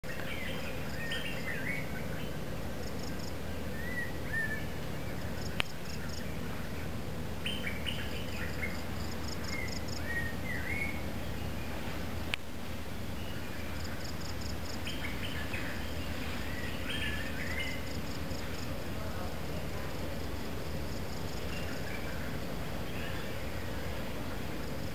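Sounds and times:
low background noise: 0.0 - 24.9
birds singing whistled notes: 0.1 - 11.8, 13.1 - 18.7
insects chirping: 0.1 - 24.9.

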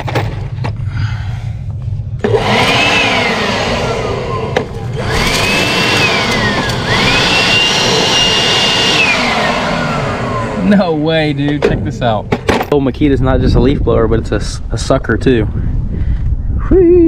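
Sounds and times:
blower motor whine: 1.7 - 11.5.

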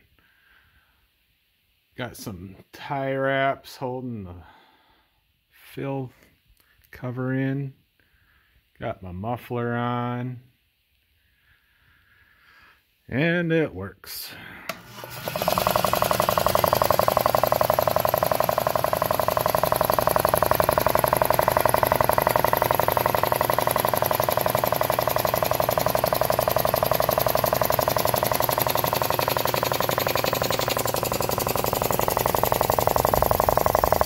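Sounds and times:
air compressor pumping: 14.7 - 34.0.

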